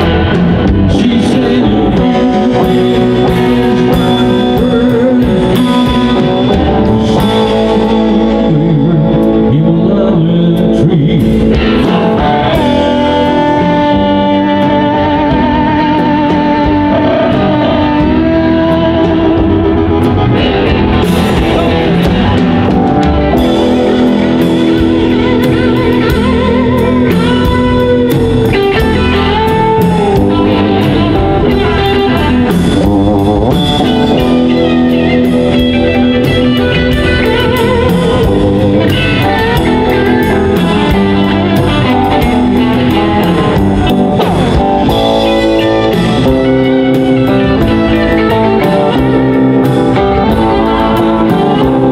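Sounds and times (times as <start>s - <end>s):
blues-rock band playing: 0.0s - 51.9s
harmonica: 11.6s - 51.9s.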